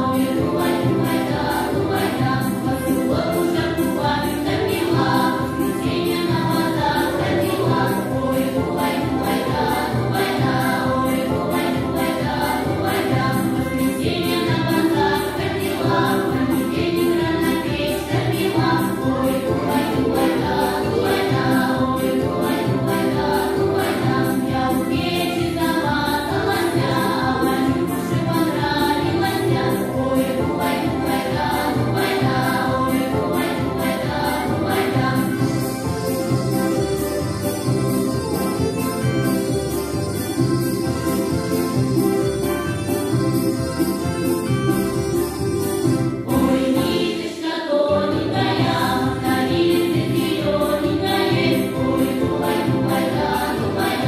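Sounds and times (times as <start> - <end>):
choir singing folk song: 0.0 - 54.0
instrumental accompaniment: 0.0 - 54.0.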